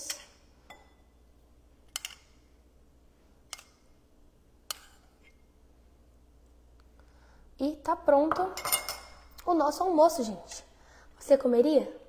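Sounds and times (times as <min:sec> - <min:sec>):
metal spoon clinking on ceramic cup: 0:01.9 - 0:02.3, 0:08.6 - 0:09.2.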